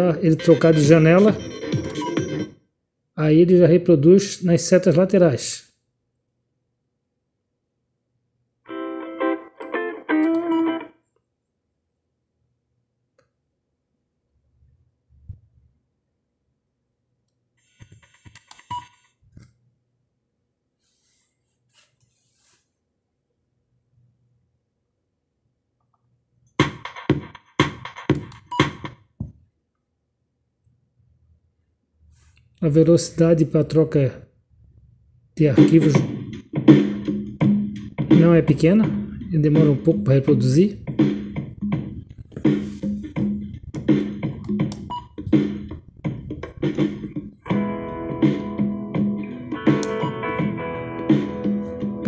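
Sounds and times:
music with a strong beat: 0:26.6 - 0:28.9, 0:35.6 - 0:40.0, 0:40.8 - 0:52.0.

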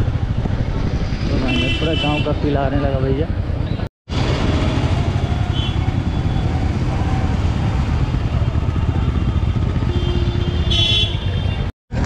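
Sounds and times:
street traffic: 0:00.0 - 0:12.0
motorcycle engine running: 0:03.3 - 0:11.3.

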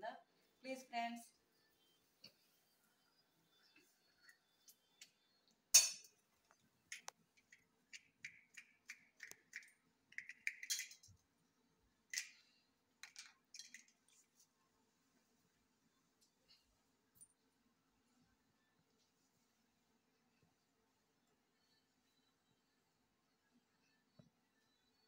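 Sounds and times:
metal vessels clinking and tapping: 0:05.7 - 0:06.1, 0:10.2 - 0:11.1.

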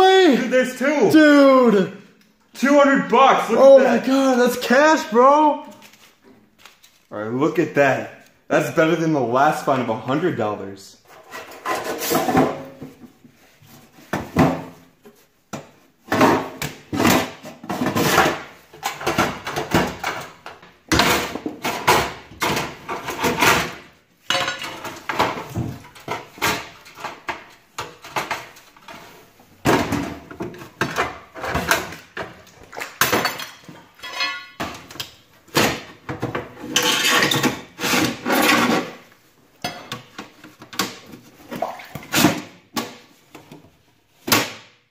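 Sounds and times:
metal boxes clanking and scraping: 0:11.1 - 0:14.8, 0:16.0 - 0:32.4, 0:33.1 - 0:39.1.

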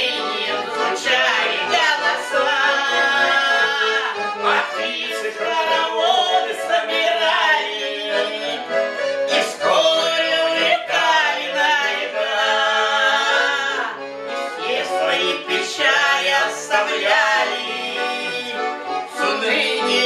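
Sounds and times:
button accordion: 0:00.0 - 0:20.0
man and woman singing duet: 0:00.0 - 0:20.0.

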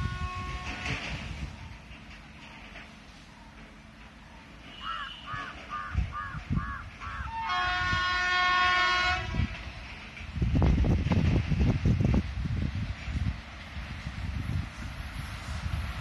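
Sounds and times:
locomotive horn blast: 0:00.0 - 0:01.1, 0:04.6 - 0:05.6, 0:07.3 - 0:09.5
train rumble: 0:00.0 - 0:16.0.

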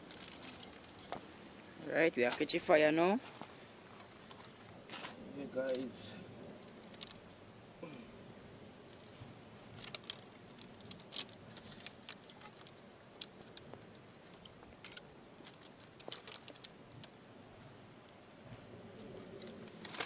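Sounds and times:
wrapper crackling in flame: 0:00.0 - 0:01.1, 0:06.5 - 0:07.3, 0:08.9 - 0:17.2, 0:19.3 - 0:20.0.

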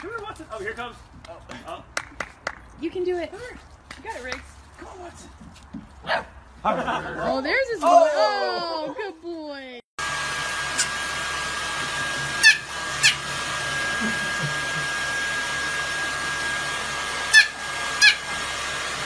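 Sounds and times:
hair dryer blowing: 0:10.0 - 0:19.0
puppy yipping: 0:12.4 - 0:13.2, 0:17.3 - 0:18.3.

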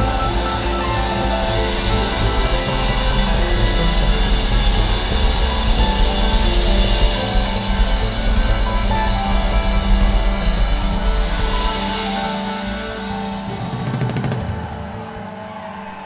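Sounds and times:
drum strokes: 0:00.0 - 0:16.0
piano bass and drums band: 0:00.0 - 0:16.0.

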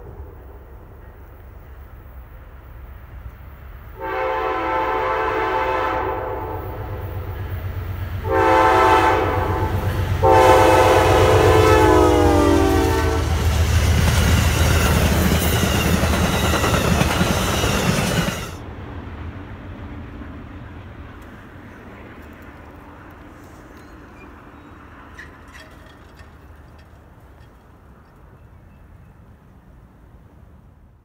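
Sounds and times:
train horn: 0:03.9 - 0:07.5, 0:08.2 - 0:13.5
train cars clattering on rails: 0:13.0 - 0:18.6, 0:21.2 - 0:29.2.

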